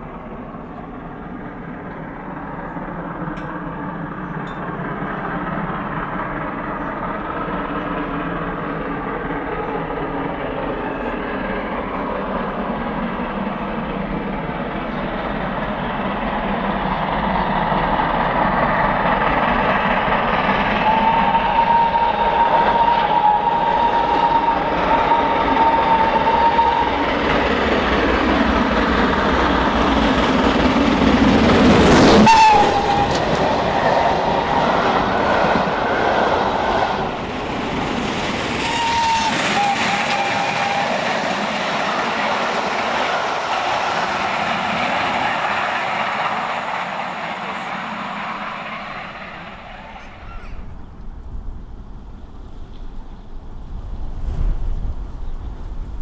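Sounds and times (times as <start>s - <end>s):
coaches clattering on rails: 0.0s - 53.2s
steam locomotive rushing past: 0.0s - 56.0s
steam train whistle: 20.6s - 27.2s, 32.0s - 34.2s, 38.6s - 42.1s.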